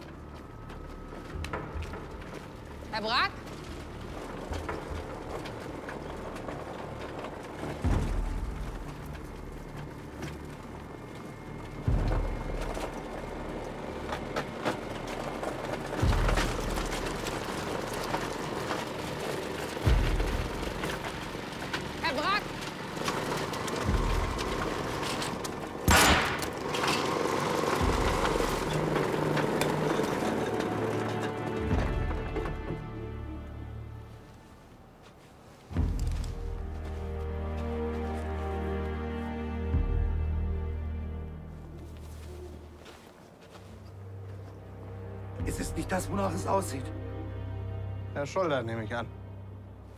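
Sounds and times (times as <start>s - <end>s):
wood chipper engine drone: 0.0s - 34.1s
loud crunching burst: 22.7s - 29.9s.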